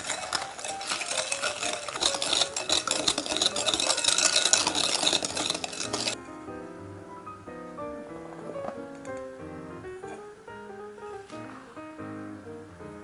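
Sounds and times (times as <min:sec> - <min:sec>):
wire whisk scraping glass bowl: 0:00.0 - 0:06.2.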